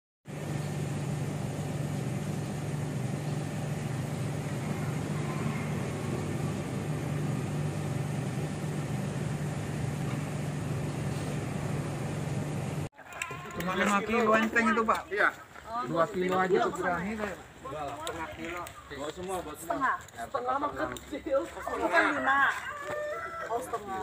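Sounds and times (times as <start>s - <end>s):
low mechanical hum: 0.3s - 12.9s.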